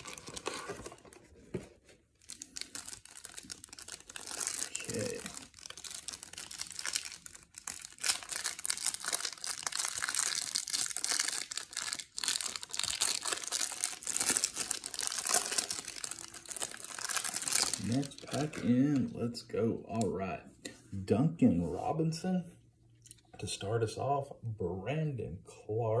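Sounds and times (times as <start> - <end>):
foil wrapper crinkling and tearing: 0.0 - 1.2, 2.1 - 19.0.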